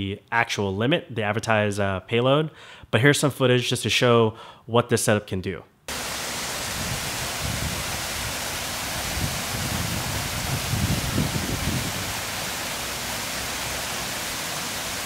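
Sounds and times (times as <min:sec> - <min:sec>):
waterfall rushing: 0:05.9 - 0:15.0.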